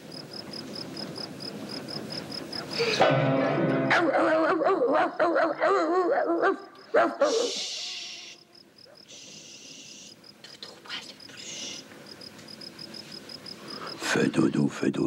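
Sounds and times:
dog howling: 3.9s - 8.0s
person hushing: 7.2s - 8.4s.

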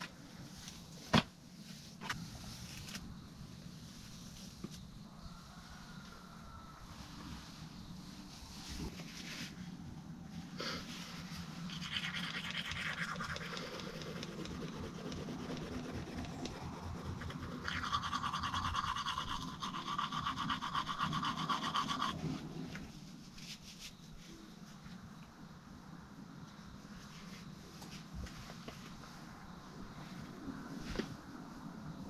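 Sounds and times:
toothbrush scrubbing teeth: 11.7s - 22.3s.

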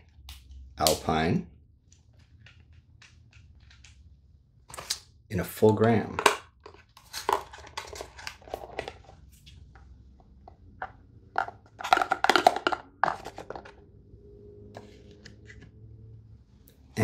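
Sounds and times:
plastic containers clicking: 9.8s - 13.8s.

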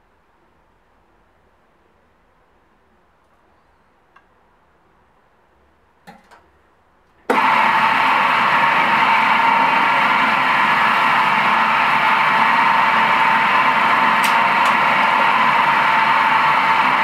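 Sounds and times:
bowl cutter motor running: 7.3s - 17.0s.

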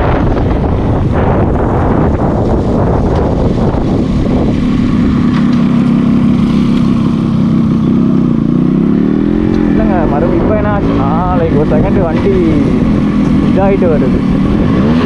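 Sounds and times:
motorcycle engine running: 0.0s - 15.0s
wind on microphone: 0.0s - 15.0s.

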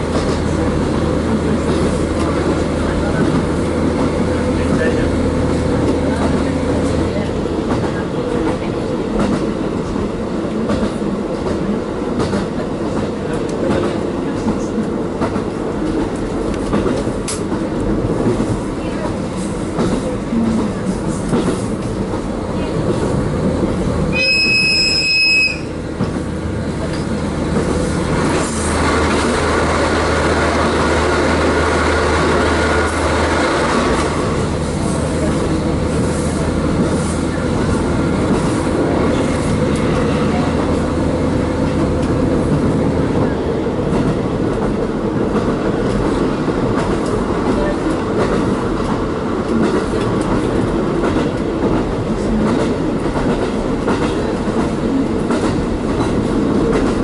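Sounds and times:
train wheels rolling on rails: 0.0s - 57.0s
high whistle blast: 24.2s - 25.7s.

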